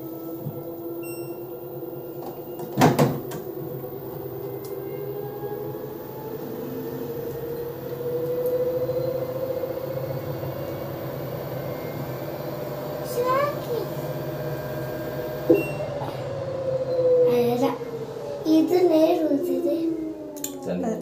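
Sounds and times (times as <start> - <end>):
washing machine humming: 0.0 - 21.0
washing machine door click: 2.6 - 3.4.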